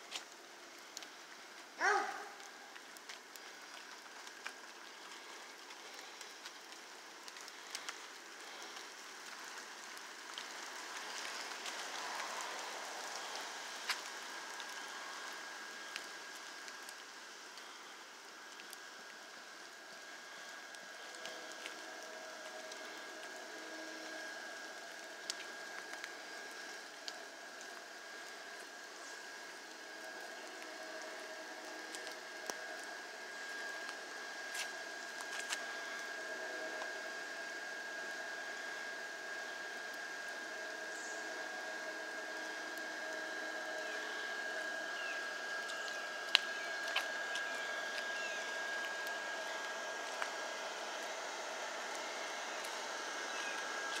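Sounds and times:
faint high whine: 0.0 - 54.0
light rain hissing: 0.0 - 54.0.

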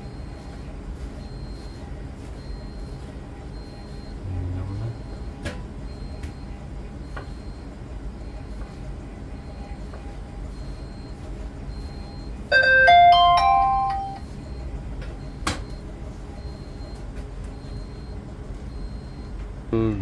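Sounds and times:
steady low hum: 0.0 - 12.5
electronic chime melody: 12.5 - 14.2.

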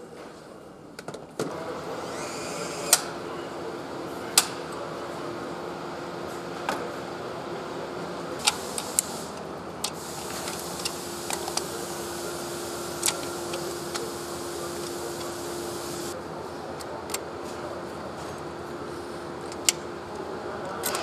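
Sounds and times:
machine hum: 7.5 - 16.2.

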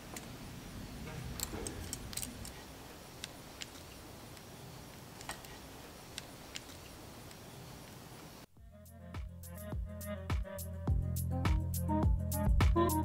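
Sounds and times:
calipers clicking on metal: 1.0 - 7.4.

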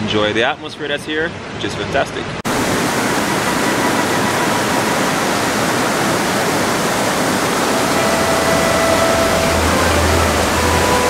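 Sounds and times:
river water rushing: 1.3 - 11.0.

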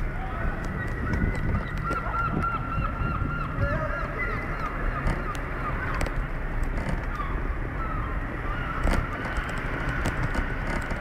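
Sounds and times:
high chirping calls: 0.6 - 6.2
tyre rolling over paving slabs: 8.8 - 11.0.

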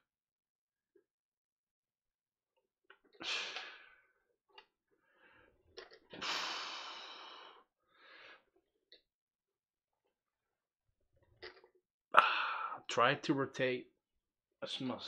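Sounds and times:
man breathing out forcefully: 3.2 - 4.1, 6.1 - 8.5, 12.2 - 12.8.

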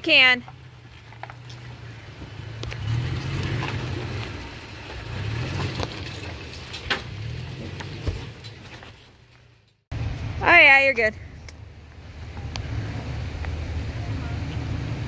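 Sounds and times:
stones ticking underneath: 0.4 - 6.9
tyres grinding on rock: 0.4 - 9.4.

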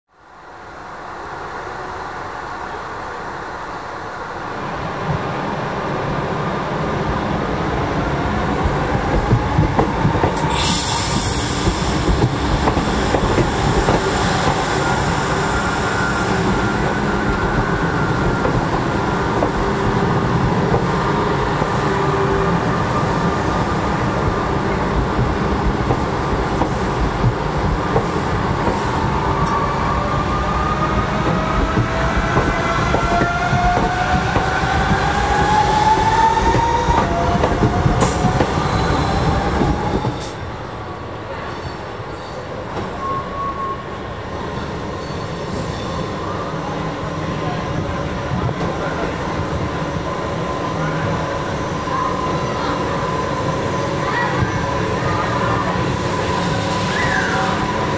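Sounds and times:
electric train rumbling: 0.3 - 57.9.

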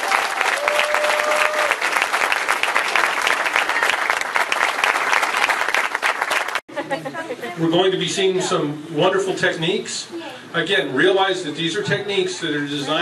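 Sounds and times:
person cheering: 0.0 - 1.8
audience applauding: 0.0 - 6.7.

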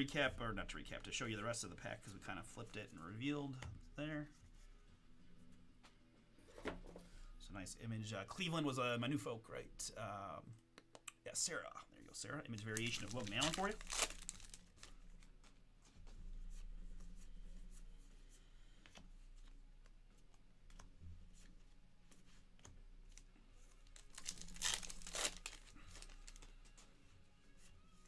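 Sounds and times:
cards rustling: 12.5 - 16.0, 18.7 - 27.0
cards being flipped through: 12.5 - 16.2, 18.8 - 26.9.

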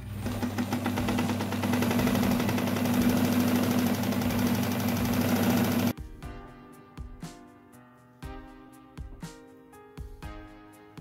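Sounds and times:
sewing machine motor humming: 0.0 - 5.9
mechanical clatter: 0.2 - 5.9.

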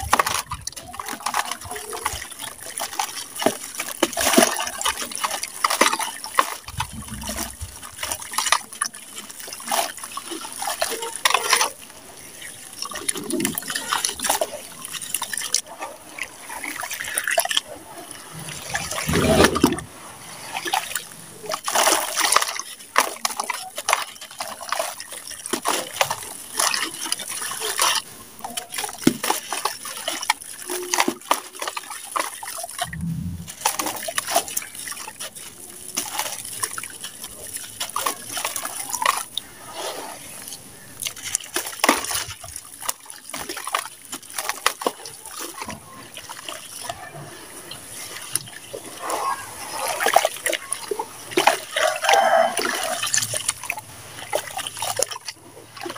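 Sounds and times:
hands squelching wet mud: 0.0 - 55.9
mud plopping: 0.0 - 55.9.

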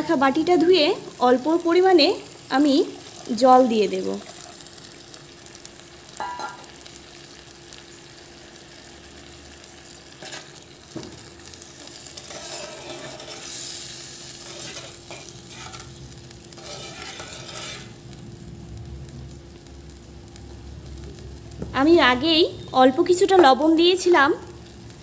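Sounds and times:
lentils sizzling and bubbling: 0.0 - 25.0
spatula stirring and scraping: 10.2 - 10.6, 11.7 - 18.0.

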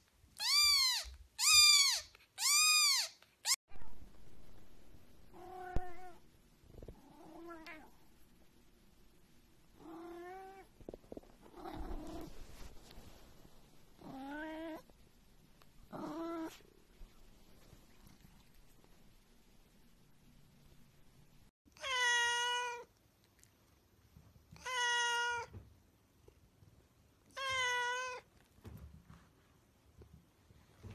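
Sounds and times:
cat meowing: 0.4 - 4.0, 21.7 - 22.9, 24.5 - 25.6, 27.3 - 28.3.

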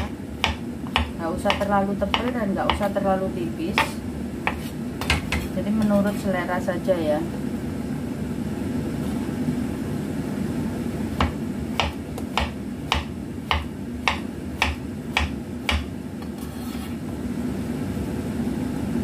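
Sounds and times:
knife chopping on cutting board: 0.0 - 2.9, 3.8 - 6.0, 11.2 - 16.9
steady low hum: 0.0 - 19.0.

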